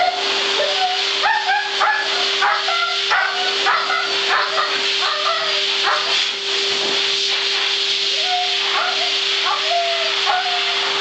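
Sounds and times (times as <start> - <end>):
dog howling: 0.0 - 6.1, 8.1 - 11.0
blow dryer hissing: 0.0 - 11.0.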